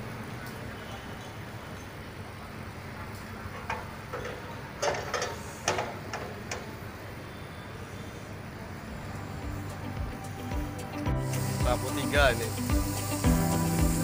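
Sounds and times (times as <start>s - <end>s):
low substation hum: 8.5s - 14.0s.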